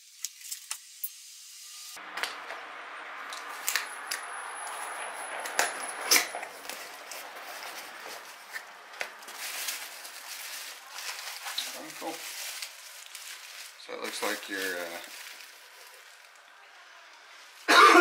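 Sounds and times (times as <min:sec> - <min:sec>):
cardboard rustling and scraping: 0:04.6 - 0:16.4.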